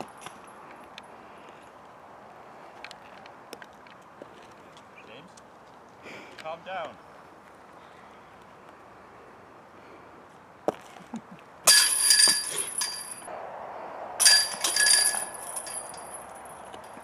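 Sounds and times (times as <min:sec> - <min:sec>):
disc hitting basket chains: 0:11.6 - 0:13.3, 0:14.2 - 0:17.0.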